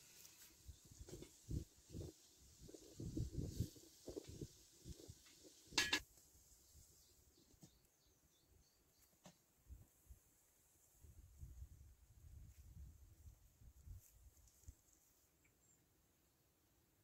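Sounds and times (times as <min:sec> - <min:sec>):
metal pot and utensils handled: 0:05.7 - 0:06.1
sharp metallic clank: 0:05.8 - 0:06.0
faint bird chirps: 0:06.6 - 0:09.5, 0:14.8 - 0:16.0.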